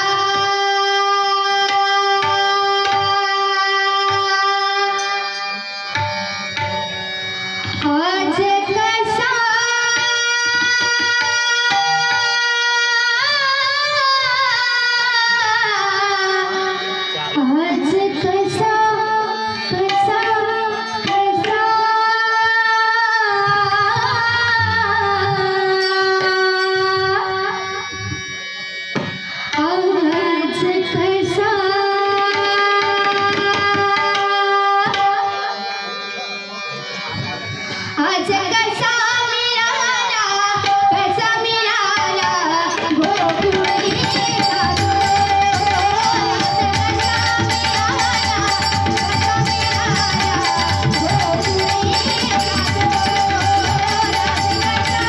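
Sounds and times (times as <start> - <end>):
person singing devotional song: 0.0 - 6.0, 7.8 - 27.9, 29.6 - 36.3, 37.4 - 55.0
harmonium notes: 0.0 - 55.0.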